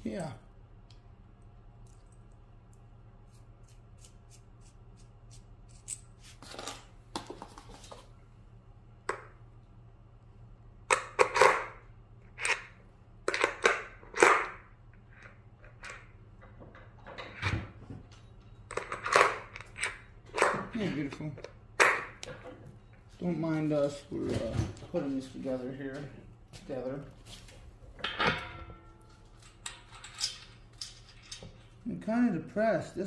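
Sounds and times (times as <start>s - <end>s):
metal parts and tools clanking: 18.2s - 21.5s, 27.9s - 31.8s.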